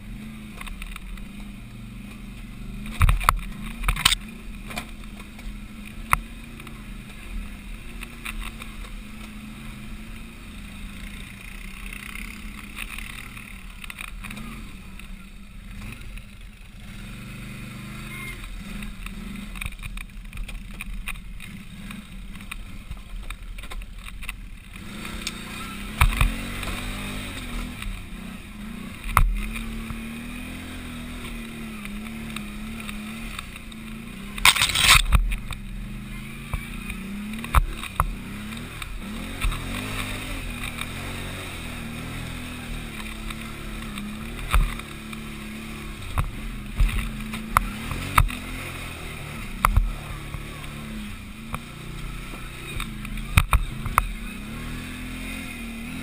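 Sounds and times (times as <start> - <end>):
atv engine working hard: 0.0 - 56.0.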